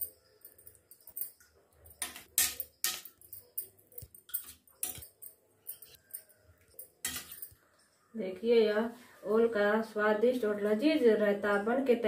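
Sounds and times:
metal utensil scraping metal plate: 7.0 - 7.5.

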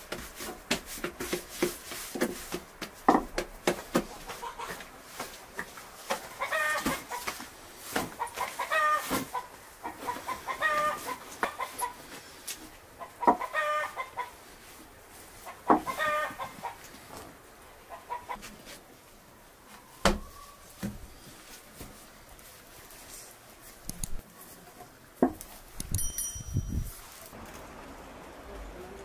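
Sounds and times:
hens clucking: 4.1 - 4.9, 6.1 - 7.4, 8.0 - 12.1, 13.0 - 14.4, 15.4 - 17.0, 17.8 - 18.5.

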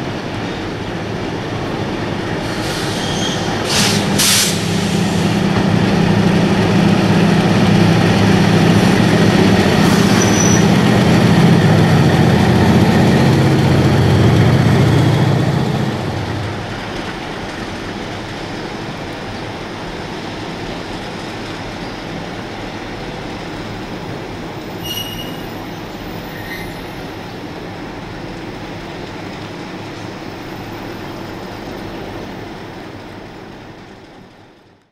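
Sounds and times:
train wagons rumbling: 0.0 - 34.7
diesel locomotive engines: 0.0 - 34.9
wheel squeals: 2.9 - 3.6, 9.8 - 10.8, 24.8 - 27.1.

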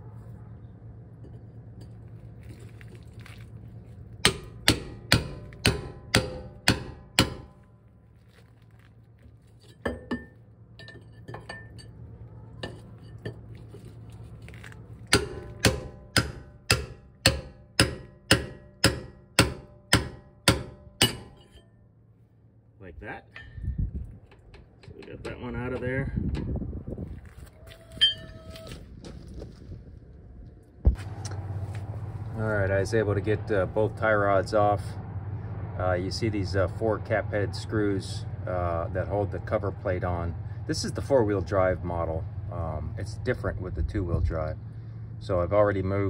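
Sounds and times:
hammer blows ringing on steel: 4.2 - 7.6, 15.1 - 21.7.

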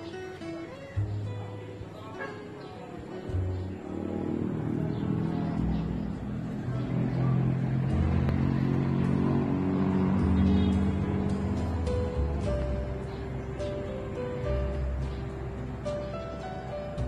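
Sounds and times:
vehicle engine humming: 1.0 - 17.0.

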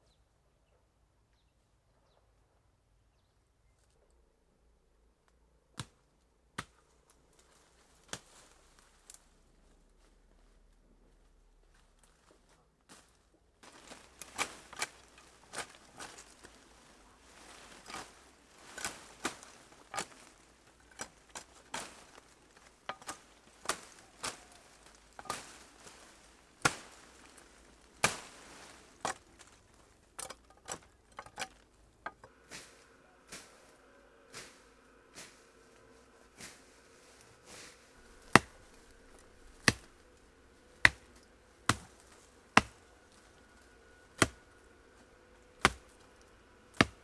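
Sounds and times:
stems cracking: 6.6 - 9.3, 13.6 - 47.0
leaves rustling: 7.0 - 10.7, 11.7 - 47.0
chopping strikes on green wood: 22.9 - 24.6, 38.1 - 40.0, 40.8 - 42.0, 42.6 - 42.8, 44.2 - 44.5, 45.6 - 46.0, 46.7 - 47.0.

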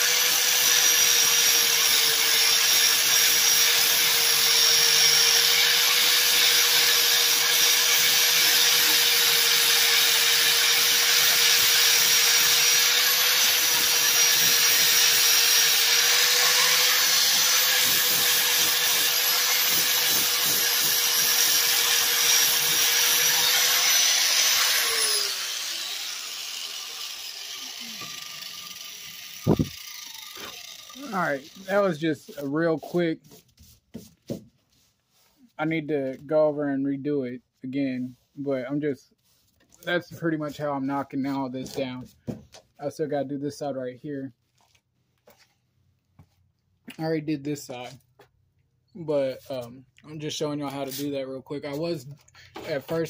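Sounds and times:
grinder spinning down: 0.0 - 32.0
angle grinder sanding filler: 0.0 - 34.4, 50.6 - 52.0.

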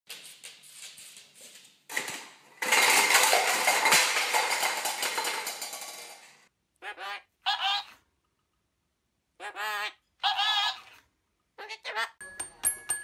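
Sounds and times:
plastic cups clattering on wood: 1.9 - 6.5.

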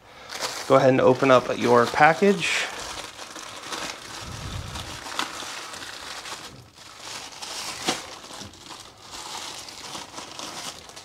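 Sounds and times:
plastic bag crinkling: 0.1 - 11.0.

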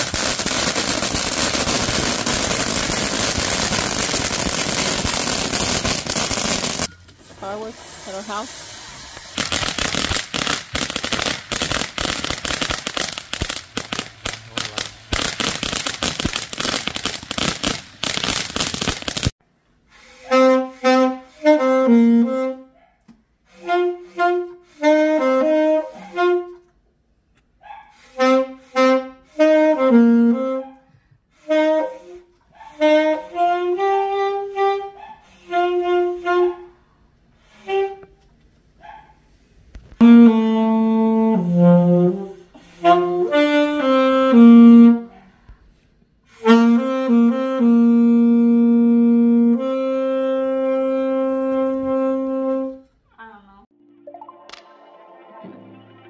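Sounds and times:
firecrackers crackling: 0.0 - 19.4
wind instrument melody: 20.0 - 22.8, 23.5 - 26.7, 28.1 - 30.6, 31.4 - 36.6, 37.4 - 38.2, 40.0 - 45.1, 46.3 - 52.9.

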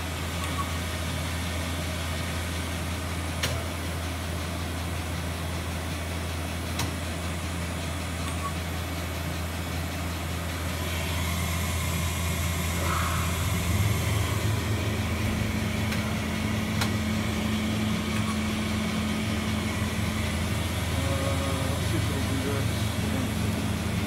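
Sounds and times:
machine hum: 0.0 - 24.0
higher steady tone: 10.9 - 24.0.

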